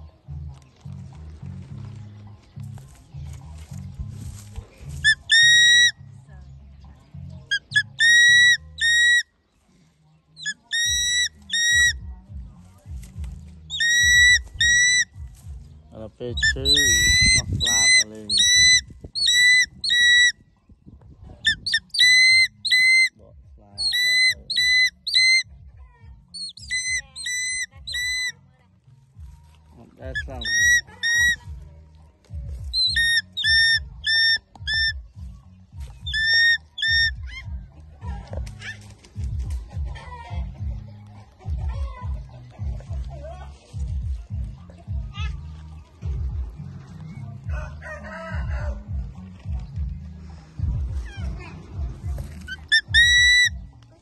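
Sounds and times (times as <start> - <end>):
eagle whistled screams: 5.0 - 6.0, 7.5 - 9.2, 13.8 - 15.1, 16.4 - 20.3, 21.5 - 23.1, 23.8 - 25.4, 26.4 - 28.3, 30.2 - 31.4, 32.8 - 35.0, 52.5 - 53.6.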